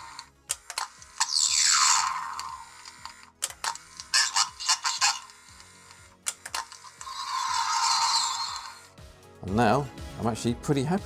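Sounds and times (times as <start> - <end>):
record mechanism clicks: 0.0 - 7.1
hissing zaps from small speaker: 0.0 - 8.9.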